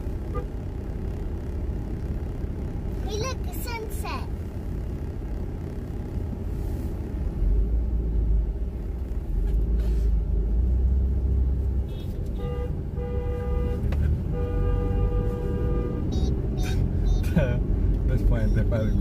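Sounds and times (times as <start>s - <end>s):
road rumble inside car: 0.0s - 19.0s
car horn toots and blast: 11.9s - 16.5s.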